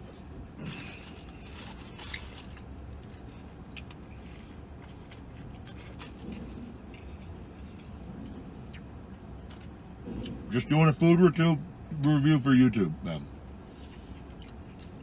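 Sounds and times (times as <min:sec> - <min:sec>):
person chewing crunchy bread: 0:00.6 - 0:10.4, 0:13.7 - 0:15.0.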